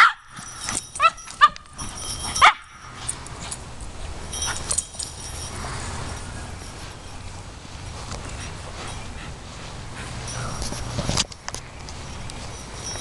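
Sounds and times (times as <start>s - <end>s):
dog yipping: 1.0s - 1.6s, 2.3s - 2.8s.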